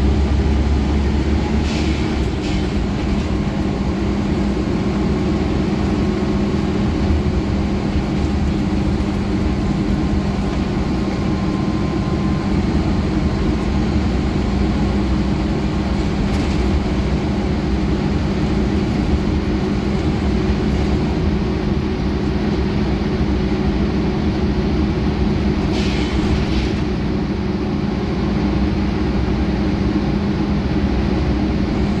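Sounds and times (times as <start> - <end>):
bus diesel engine drone: 0.0 - 32.0.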